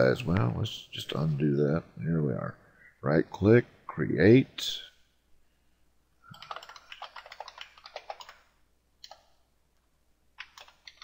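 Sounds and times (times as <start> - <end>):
typing on computer keyboard: 6.3 - 9.4, 10.4 - 11.0.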